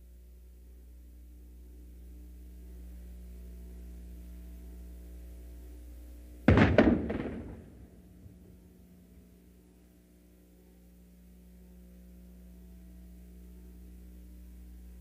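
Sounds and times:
low steady hum: 0.0s - 15.0s
cannon blank shot boom: 6.5s - 9.1s.

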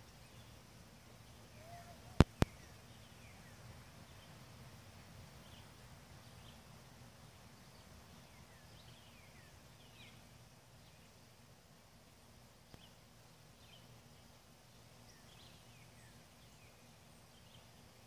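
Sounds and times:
low outdoor hum: 0.0s - 18.0s
faint bird chirps: 1.2s - 4.4s, 12.7s - 18.0s.

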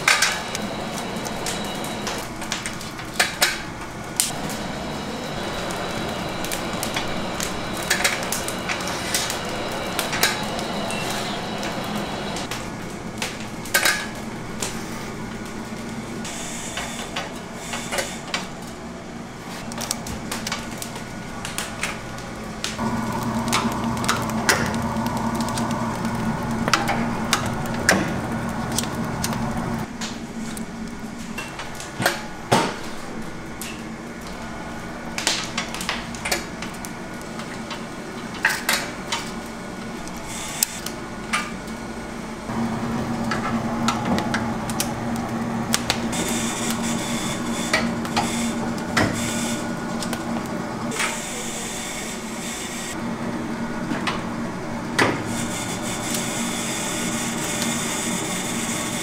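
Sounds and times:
steady low hum: 3.7s - 17.5s, 18.2s - 32.5s.

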